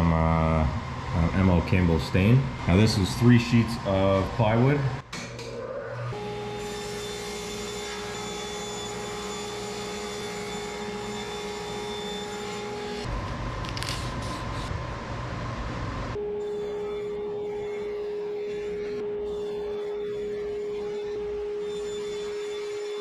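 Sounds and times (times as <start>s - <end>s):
table saw whine: 5.4s - 14.7s, 16.1s - 23.0s
saw cutting plywood: 6.2s - 13.1s, 16.4s - 23.0s.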